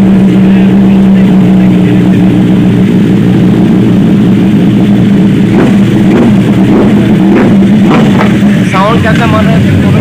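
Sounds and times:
motorcycle engine droning: 0.0s - 10.0s.

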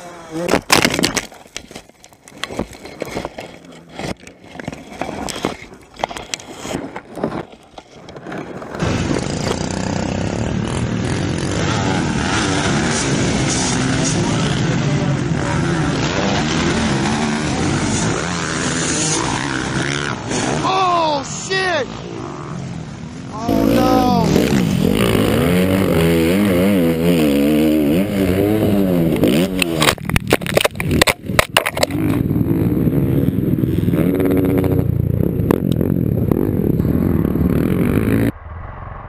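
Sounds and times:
motocross bikes racing: 8.3s - 30.0s, 31.8s - 38.3s.

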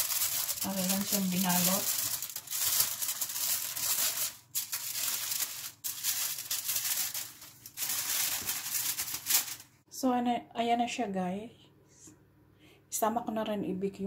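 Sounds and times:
aluminium foil crinkling: 0.0s - 9.8s.

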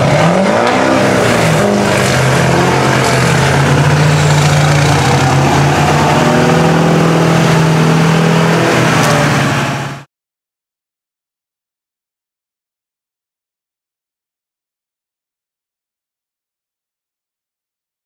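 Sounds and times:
truck engine running hard: 0.0s - 10.1s.

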